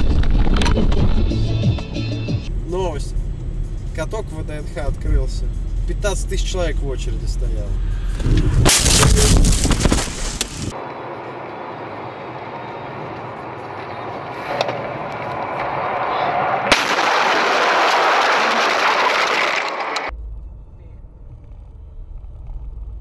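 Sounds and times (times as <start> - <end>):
road and wind noise in car: 0.0 - 16.7
car crash crunching impacts: 8.2 - 10.7, 15.6 - 20.1
snow spraying over car: 8.7 - 10.7.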